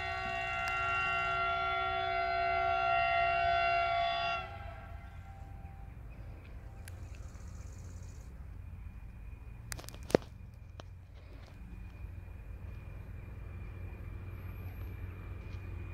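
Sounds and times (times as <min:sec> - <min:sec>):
train horn chord: 0:00.0 - 0:06.0
low steady rumble: 0:00.0 - 0:15.9.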